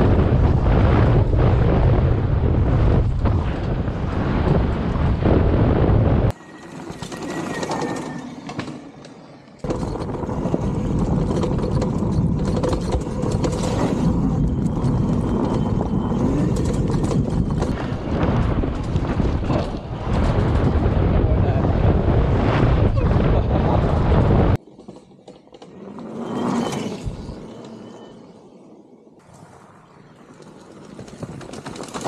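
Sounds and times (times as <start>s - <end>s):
wind buffeting microphone: 0.0s - 6.4s, 9.6s - 24.6s
tyre noise on dirt: 2.6s - 21.1s, 29.2s - 32.0s.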